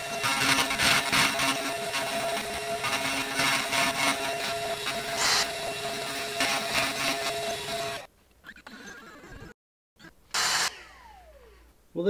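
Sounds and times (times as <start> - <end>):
spindle motor whining: 0.0 - 8.1, 10.3 - 11.7.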